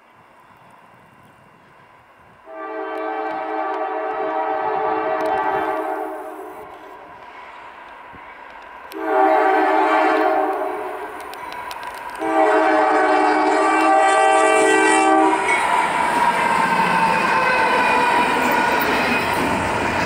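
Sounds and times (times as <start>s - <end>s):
locomotive air horn blasts: 2.4s - 7.0s, 8.9s - 11.2s, 12.1s - 15.7s
locomotive passing engine and wheels: 3.3s - 20.0s.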